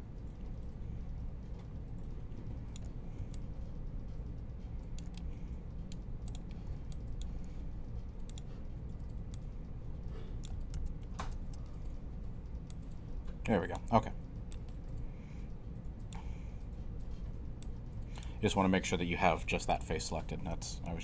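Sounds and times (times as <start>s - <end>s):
steady low hum: 0.0s - 21.0s
keyboard and mouse clicking: 1.6s - 3.6s, 4.8s - 9.7s, 10.3s - 15.1s.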